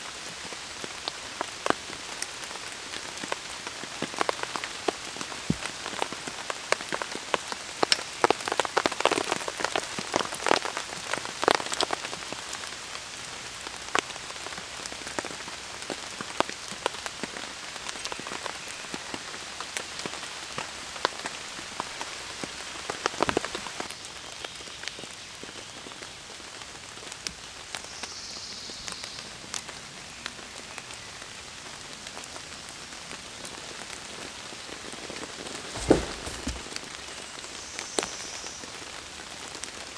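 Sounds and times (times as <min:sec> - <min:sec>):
rain falling in a forest: 0:00.0 - 0:39.9
raindrop taps: 0:35.8 - 0:36.9.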